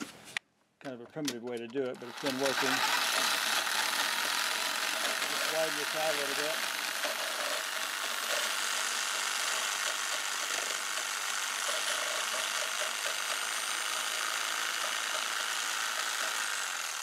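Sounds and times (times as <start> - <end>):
electric jigsaw cutting wood: 1.9 - 17.0.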